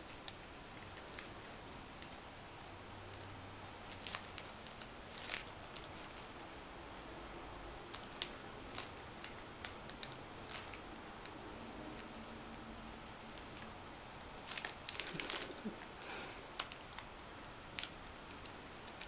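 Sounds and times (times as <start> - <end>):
kittens scrambling on crinkly fabric: 14.4 - 17.0.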